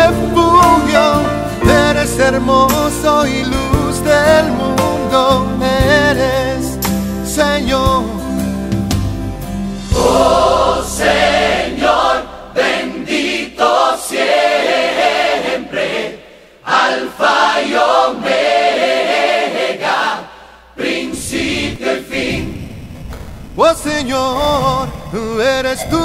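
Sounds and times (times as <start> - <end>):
group singing worship song: 9.8 - 22.8.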